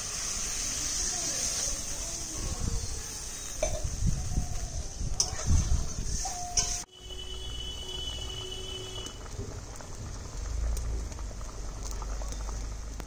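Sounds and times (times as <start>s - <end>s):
curry bubbling in pot: 6.8s - 13.0s.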